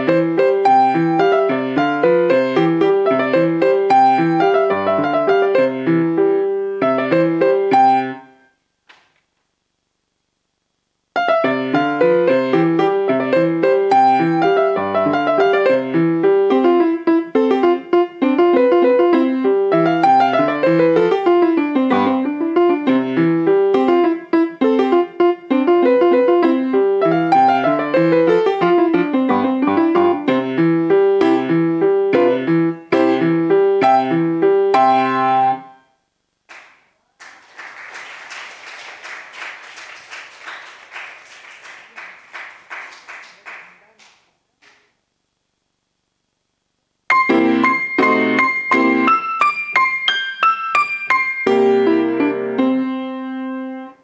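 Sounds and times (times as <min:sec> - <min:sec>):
solo piano piece: 0:00.0 - 0:08.4, 0:11.2 - 0:35.8, 0:47.1 - 0:54.0
audience clapping: 0:36.5 - 0:44.9.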